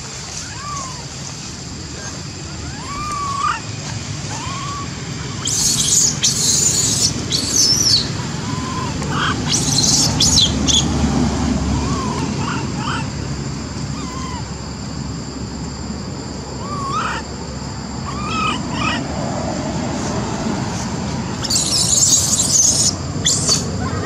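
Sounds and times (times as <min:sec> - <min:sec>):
loud high chirping bursts: 0:04.4 - 0:10.9, 0:21.3 - 0:24.0.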